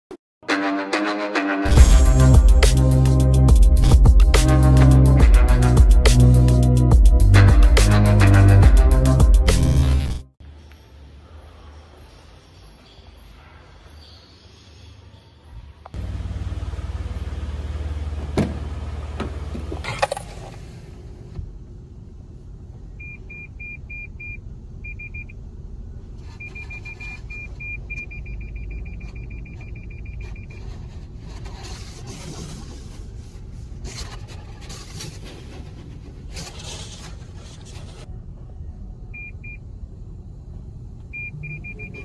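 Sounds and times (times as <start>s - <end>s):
low hum inside car: 15.9s - 32.0s, 38.0s - 42.0s
car electronic warning beeps: 23.0s - 25.4s, 26.3s - 30.6s, 39.1s - 39.6s, 41.1s - 42.0s.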